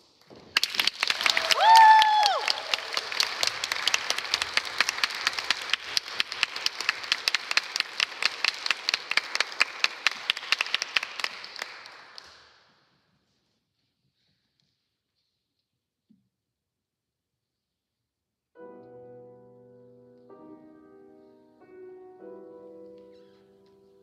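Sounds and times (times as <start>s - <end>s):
audience applauding: 0.5s - 12.6s.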